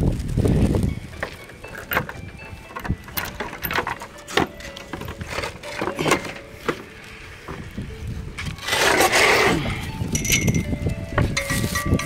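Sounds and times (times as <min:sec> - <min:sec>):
wind buffeting microphone: 0:00.0 - 0:03.8, 0:07.0 - 0:12.0
metal chain clinking: 0:01.1 - 0:06.5, 0:10.0 - 0:12.0.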